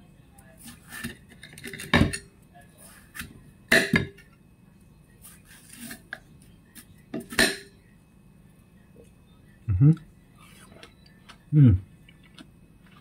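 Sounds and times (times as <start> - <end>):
knife scraping: 5.2 - 6.1.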